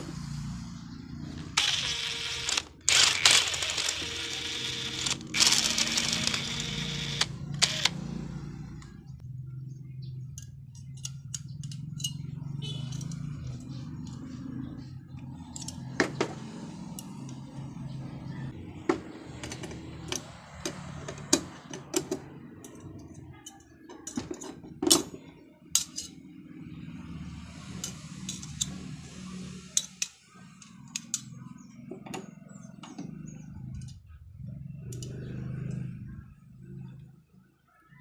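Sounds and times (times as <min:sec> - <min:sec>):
metal clamp and pliers clinking: 0:10.4 - 0:12.3, 0:25.8 - 0:26.2.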